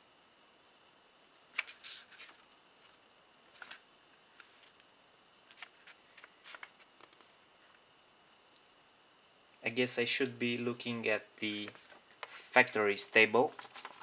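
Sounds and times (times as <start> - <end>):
paper pages rustling: 1.3 - 4.8, 5.4 - 7.8, 11.4 - 14.0.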